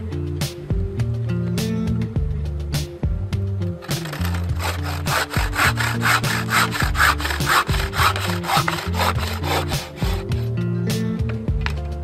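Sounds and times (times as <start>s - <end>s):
bow saw rasping through log: 3.8s - 10.6s.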